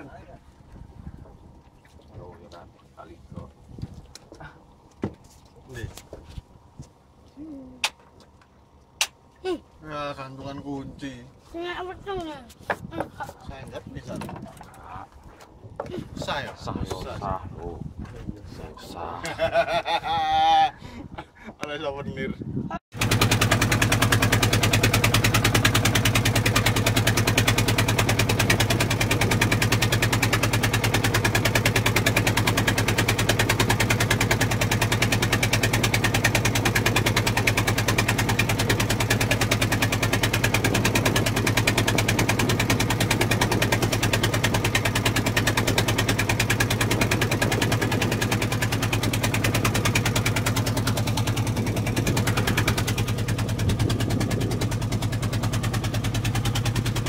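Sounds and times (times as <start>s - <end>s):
boat engine chugging: 22.9s - 57.0s.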